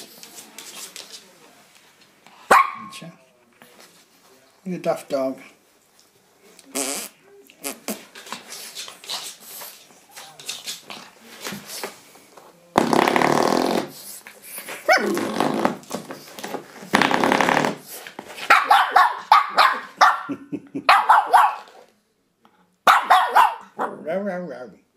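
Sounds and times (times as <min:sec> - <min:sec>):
puppy barking: 0:02.5 - 0:03.0, 0:18.5 - 0:21.8, 0:22.8 - 0:24.1
puppy growling: 0:14.9 - 0:15.4.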